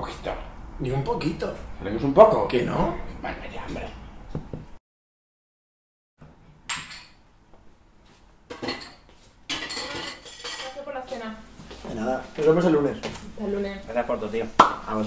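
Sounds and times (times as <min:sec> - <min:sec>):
plates and cutlery clinking: 0:08.5 - 0:10.8.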